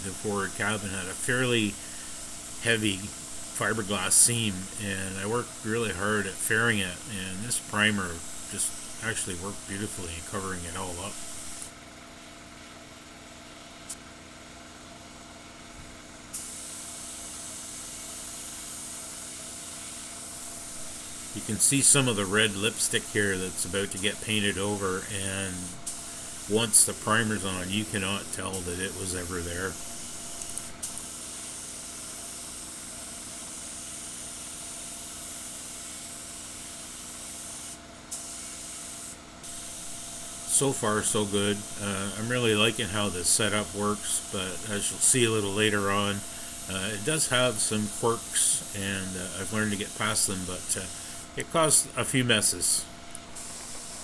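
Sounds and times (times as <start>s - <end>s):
spray gun hissing: 0.0s - 11.7s, 16.4s - 36.6s, 37.3s - 54.0s
air compressor humming: 0.0s - 11.8s, 15.1s - 54.0s.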